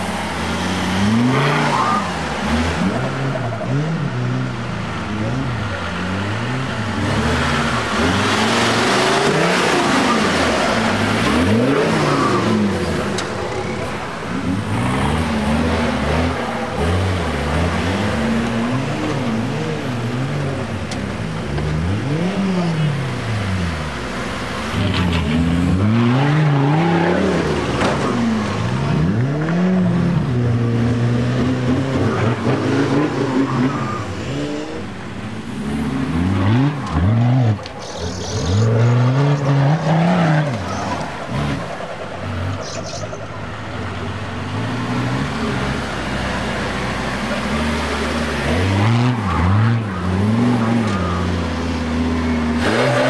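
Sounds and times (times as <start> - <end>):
engine revving hard: 5.2 - 19.9, 44.6 - 53.0.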